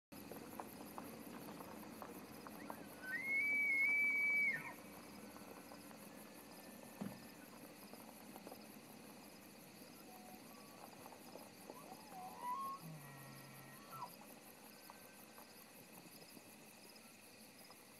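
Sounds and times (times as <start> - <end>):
elk bugling whistle: 2.6 - 4.8, 11.7 - 14.1.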